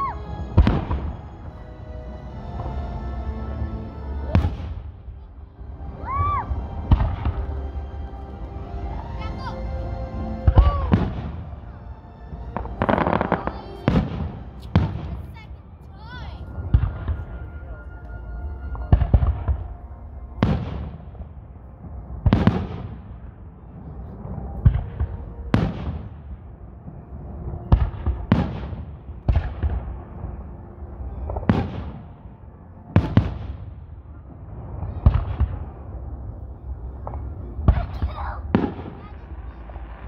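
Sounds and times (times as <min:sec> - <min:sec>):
fireworks bursting: 0:00.0 - 0:01.4, 0:04.2 - 0:05.0, 0:06.0 - 0:08.5, 0:10.4 - 0:11.5, 0:12.3 - 0:15.6, 0:36.9 - 0:40.0.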